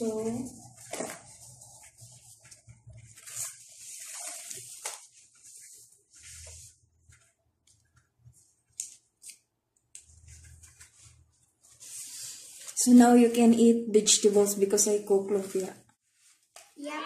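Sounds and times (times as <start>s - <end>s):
thin wrappers rustling: 0.0s - 13.4s.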